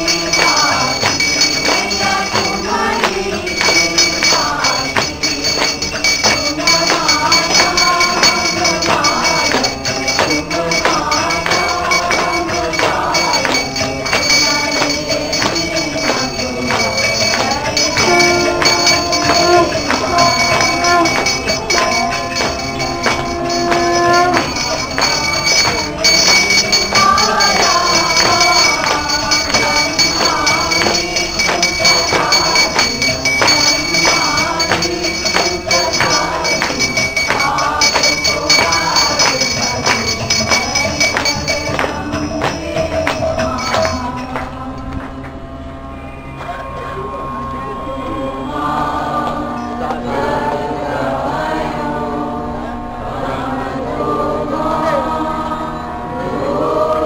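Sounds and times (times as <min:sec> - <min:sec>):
steady ringing tone: 0:00.0 - 0:44.8
jingling metal percussion: 0:00.0 - 0:45.0
devotional melody: 0:00.0 - 0:57.0.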